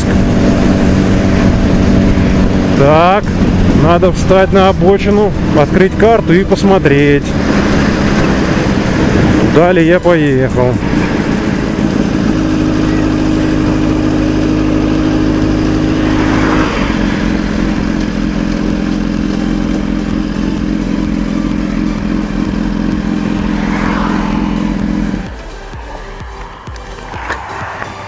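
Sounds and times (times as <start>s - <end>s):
motorcycle engine cruising: 0.0s - 28.0s.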